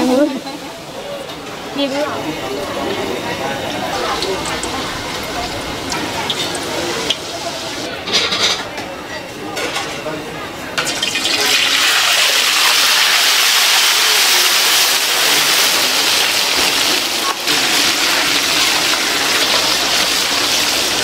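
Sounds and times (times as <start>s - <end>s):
fish sizzling in hot oil: 4.0s - 7.9s, 10.8s - 21.0s.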